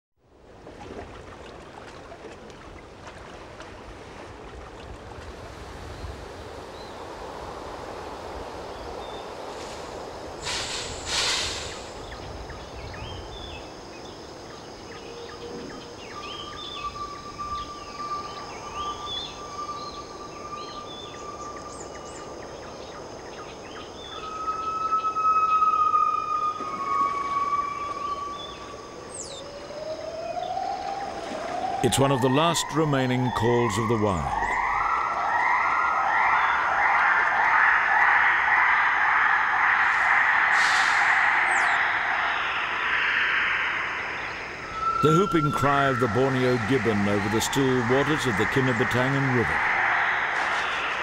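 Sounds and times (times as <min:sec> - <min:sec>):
insect drone: 0:05.3 - 0:51.0
bird chirps: 0:10.6 - 0:30.8, 0:39.8 - 0:51.0
steady whistle-like tone: 0:14.8 - 0:23.0, 0:23.6 - 0:51.0
noisy burst: 0:37.4 - 0:51.0.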